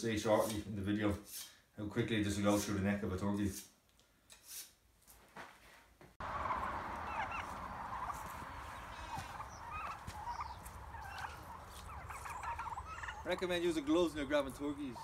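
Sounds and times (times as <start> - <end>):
knife drawn through sharpener: 1.2 - 1.6, 4.3 - 4.8
turkeys chirping: 6.2 - 15.0.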